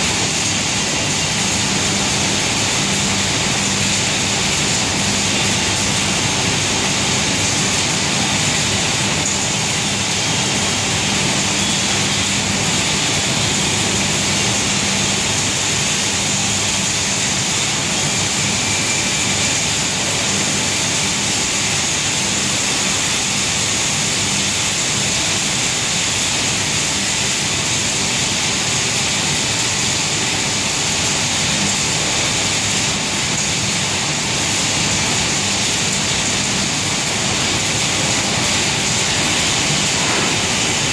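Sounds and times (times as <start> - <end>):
extraction fans droning: 0.0 - 40.9.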